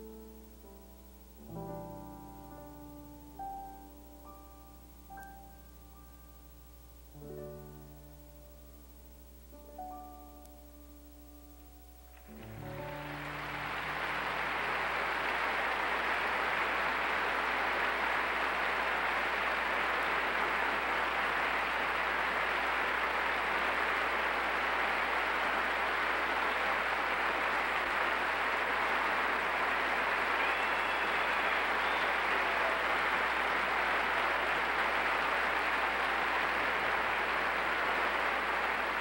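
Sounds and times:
piano notes: 12.1 - 15.2
audience applauding: 12.2 - 39.0.

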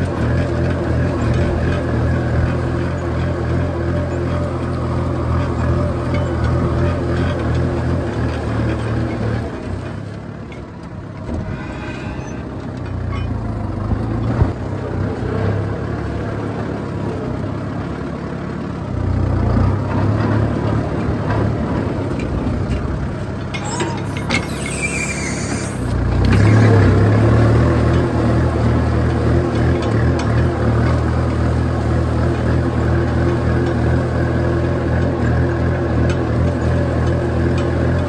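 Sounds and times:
tractor diesel engine running: 0.0 - 38.0.

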